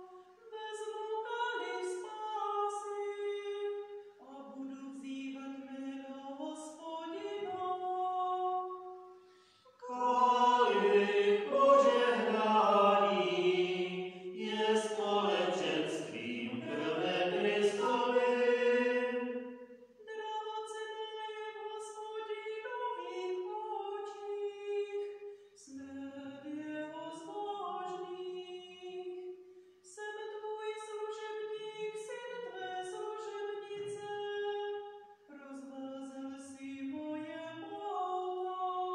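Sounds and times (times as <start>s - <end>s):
several voices singing: 9.8s - 19.5s.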